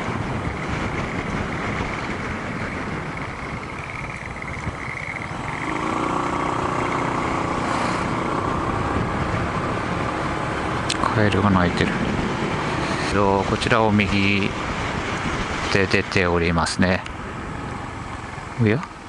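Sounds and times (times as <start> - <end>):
scooter engine running: 0.0 - 11.2
road rumble: 0.0 - 19.0
wind: 0.0 - 19.0.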